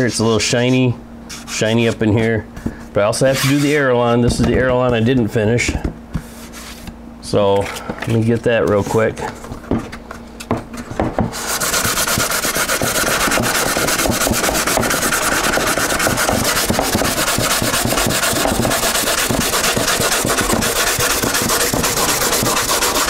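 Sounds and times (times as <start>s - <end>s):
sandpaper scratching: 3.2s - 3.8s, 11.4s - 23.0s.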